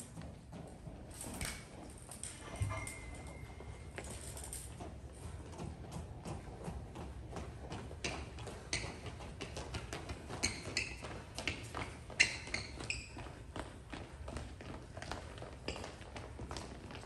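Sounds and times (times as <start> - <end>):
shoe squeaks: 2.3 - 4.5, 8.0 - 13.6.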